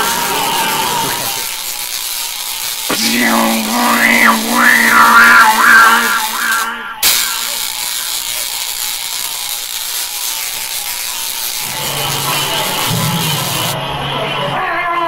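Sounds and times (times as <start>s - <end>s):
electronic hum with warbling tones: 0.0s - 13.8s
hissy whir: 0.0s - 13.8s.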